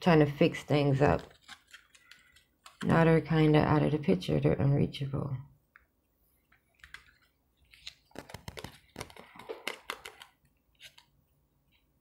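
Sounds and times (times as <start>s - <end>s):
cards handled on a table: 6.5s - 11.1s.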